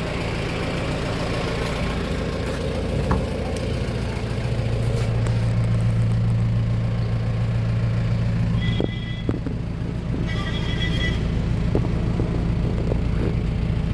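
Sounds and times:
diesel engine idling: 0.0s - 13.9s
short electronic beep: 8.6s - 9.3s, 10.3s - 11.3s.

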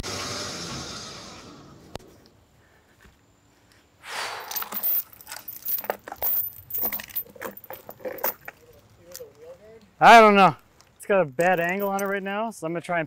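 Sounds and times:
metal chain clinking and rattling: 4.4s - 9.5s, 11.4s - 12.3s.

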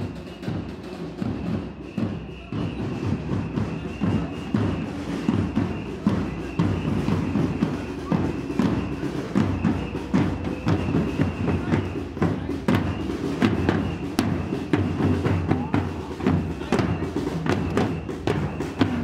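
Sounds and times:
crowd voices: 0.0s - 19.0s
marching snare and bass drums: 0.0s - 19.0s.

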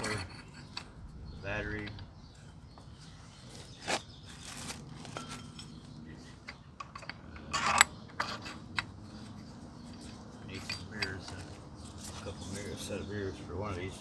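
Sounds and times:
metal parts clicking and clinking: 0.0s - 1.0s, 5.0s - 9.0s
metal parts rattling: 4.9s - 8.9s.

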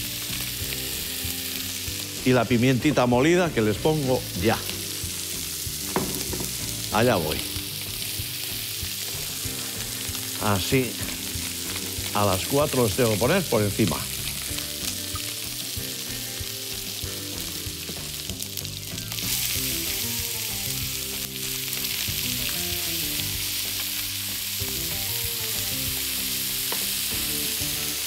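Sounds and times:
meat sizzling in a frying pan: 0.0s - 28.0s
soft background music: 0.0s - 28.0s.

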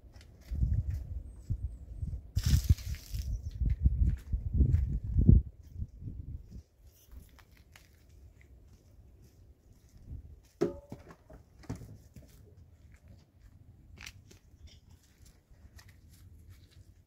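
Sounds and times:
quiet footsteps: 2.6s - 17.0s.

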